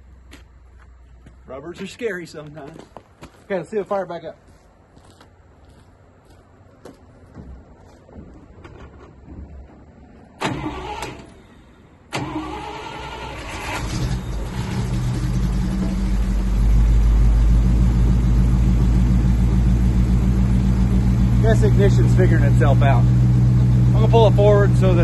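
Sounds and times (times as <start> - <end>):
truck engine cranking and running: 7.3 - 25.0.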